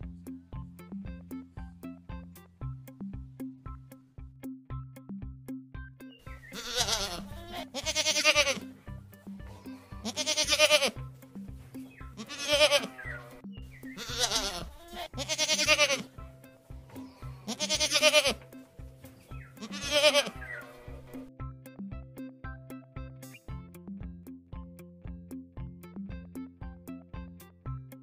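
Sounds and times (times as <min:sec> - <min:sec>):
music with steady beat: 0:00.0 - 0:28.0
goat bleating: 0:06.4 - 0:08.7, 0:09.6 - 0:11.0, 0:12.1 - 0:16.1, 0:17.3 - 0:18.4, 0:19.4 - 0:21.2.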